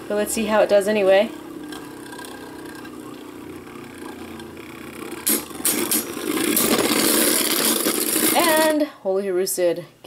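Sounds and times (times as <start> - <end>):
spinning tops whirring: 0.0 - 8.8
spinning tops clashing: 5.2 - 8.7.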